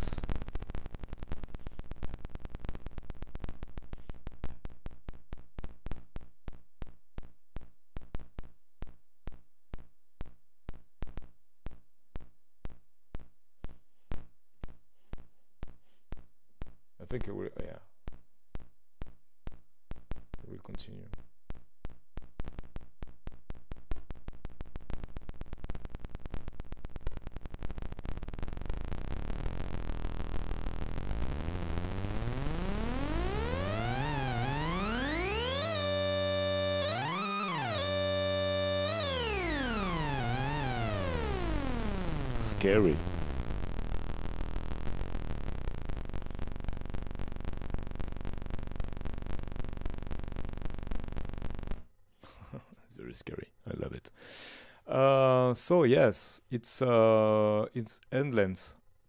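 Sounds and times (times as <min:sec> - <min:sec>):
synthesized click pulses: 0:18.1 - 0:51.8
low buzzing drone: 0:27.4 - 0:51.8.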